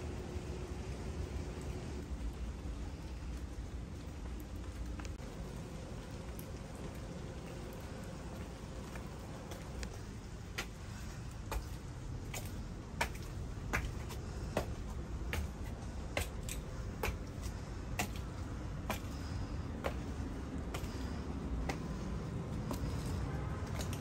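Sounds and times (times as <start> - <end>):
high heels clicking on stone steps: 8.9 - 24.0.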